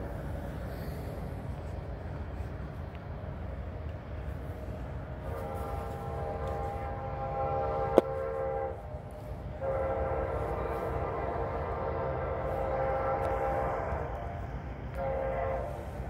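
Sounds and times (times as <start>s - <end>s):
train rumbling: 0.0s - 16.0s
locomotive air horn blasts: 5.2s - 16.0s.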